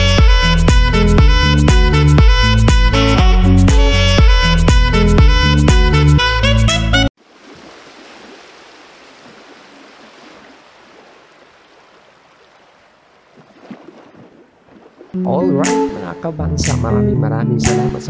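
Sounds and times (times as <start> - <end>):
background music: 0.0 - 7.1, 15.2 - 18.0.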